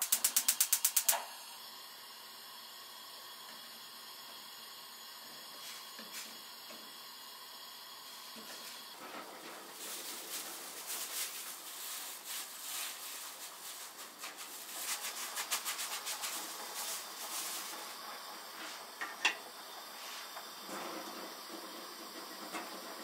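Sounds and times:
gloved hands mixing food in bowl: 0:09.3 - 0:17.9.

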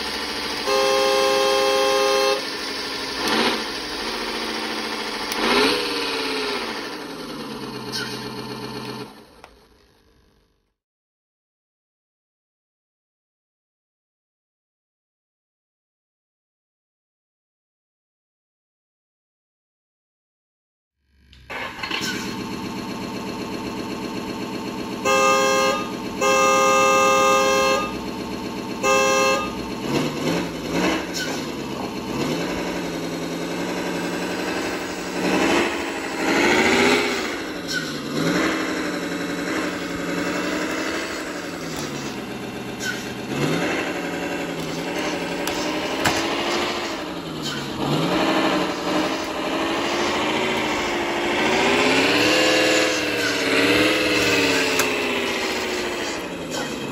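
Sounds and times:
truck horn blasts: 0:00.0 - 0:03.7, 0:25.0 - 0:31.3, 0:33.7 - 0:55.8
simulated truck engine revving: 0:00.0 - 0:10.7, 0:21.0 - 0:56.9.

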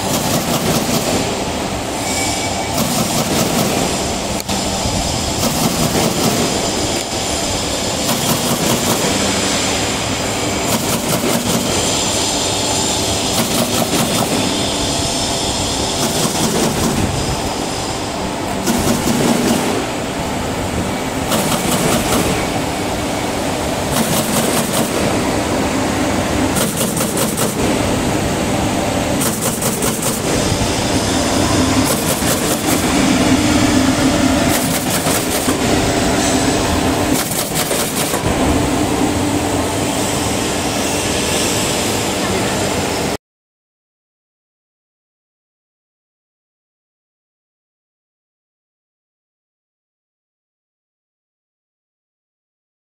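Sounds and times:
sharp machine clack: 0:00.0 - 0:01.4, 0:02.0 - 0:17.6, 0:18.5 - 0:20.0, 0:21.1 - 0:25.6, 0:26.2 - 0:28.3, 0:28.9 - 0:38.5
machine running: 0:00.0 - 0:43.2.

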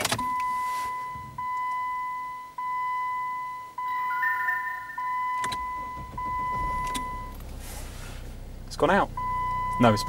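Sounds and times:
dashboard warning chime: 0:00.3 - 0:07.4
diesel engine starting: 0:05.2 - 0:10.0.

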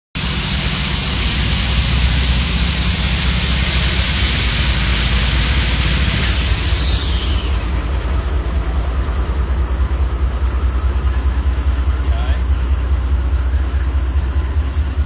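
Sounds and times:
loud even hiss: 0:00.2 - 0:08.1
diesel locomotive engine rumble: 0:00.2 - 0:15.0.

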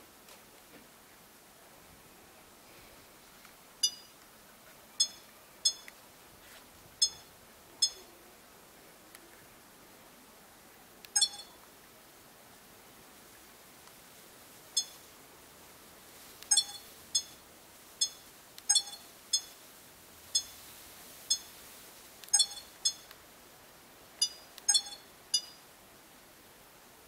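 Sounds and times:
short high electronic beeps: 0:03.8 - 0:04.1, 0:07.0 - 0:08.0, 0:11.2 - 0:11.6, 0:14.8 - 0:15.0, 0:16.5 - 0:17.4, 0:18.0 - 0:19.5, 0:22.3 - 0:23.1, 0:24.2 - 0:25.6.

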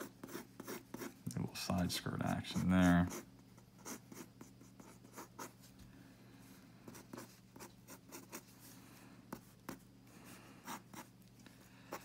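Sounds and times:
pencil scratching on paper: 0:00.0 - 0:01.2, 0:02.2 - 0:05.6, 0:06.9 - 0:08.5, 0:10.6 - 0:11.1
faint electrical hum: 0:00.0 - 0:12.0.

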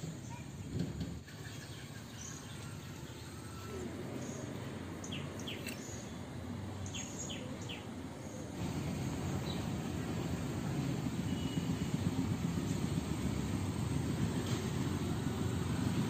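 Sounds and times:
low outdoor rumble: 0:06.1 - 0:16.0.

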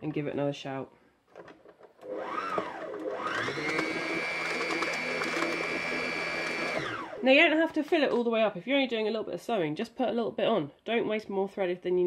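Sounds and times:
sewing machine motor whining: 0:02.0 - 0:07.2.

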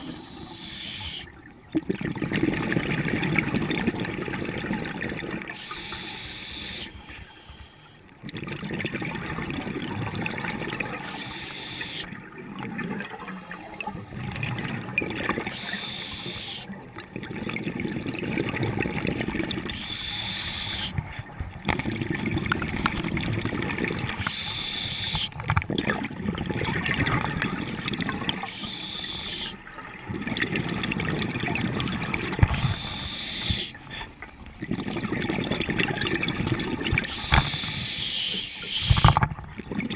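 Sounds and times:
regulator inhale hiss: 0:00.0 - 0:01.3, 0:05.6 - 0:08.0, 0:11.1 - 0:12.1, 0:15.4 - 0:16.7, 0:19.7 - 0:21.0, 0:24.2 - 0:25.4, 0:28.4 - 0:29.6, 0:32.5 - 0:34.1, 0:37.1 - 0:39.2
gurgling exhaust bubbles: 0:01.7 - 0:05.5, 0:08.2 - 0:11.2, 0:20.8 - 0:24.3, 0:25.3 - 0:28.5, 0:29.5 - 0:33.9, 0:34.6 - 0:37.5.

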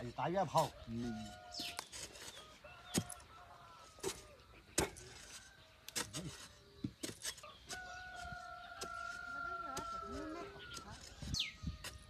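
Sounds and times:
hoe chopping into dry soil: 0:01.5 - 0:03.4, 0:04.0 - 0:10.0.

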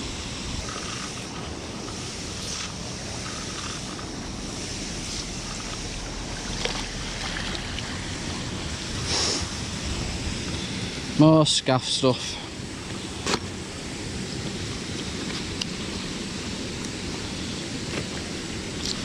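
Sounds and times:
wind on microphone: 0:00.0 - 0:11.3
faint water noise: 0:00.0 - 0:19.0.

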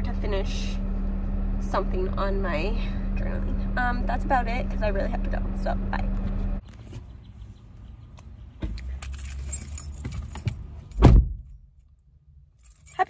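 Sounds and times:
low hum: 0:00.0 - 0:06.6
clicks and clinks of handling: 0:08.8 - 0:11.0
heavy thump: 0:10.9 - 0:11.5.

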